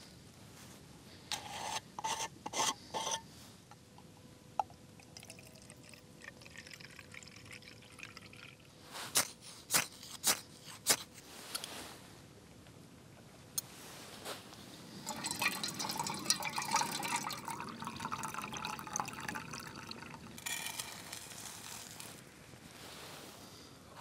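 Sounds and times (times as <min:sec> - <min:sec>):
fuel trickling from a bottle: 0:05.0 - 0:08.8, 0:15.0 - 0:22.2.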